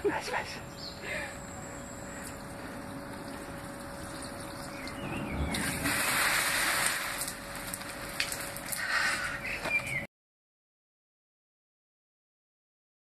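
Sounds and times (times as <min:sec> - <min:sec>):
fountain water splashing: 0:03.2 - 0:08.8.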